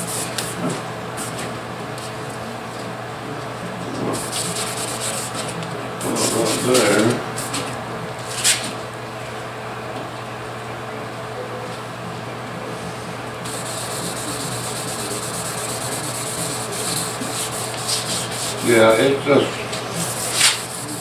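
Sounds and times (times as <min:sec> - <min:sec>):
sandpaper rubbing on metal: 0:04.2 - 0:05.4, 0:06.2 - 0:07.0, 0:13.5 - 0:19.0, 0:20.0 - 0:21.0.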